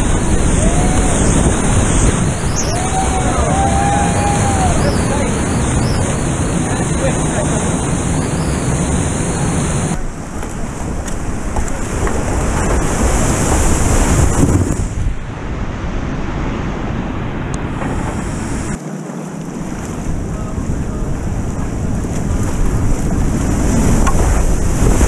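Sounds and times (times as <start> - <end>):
rushing whitewater and waterfall: 0.0 - 14.4
wind buffeting microphone: 0.0 - 25.0.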